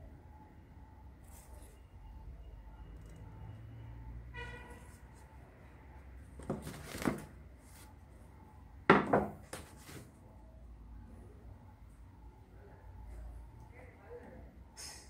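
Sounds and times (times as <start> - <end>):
wooden clatter and knocking: 8.9 - 9.6.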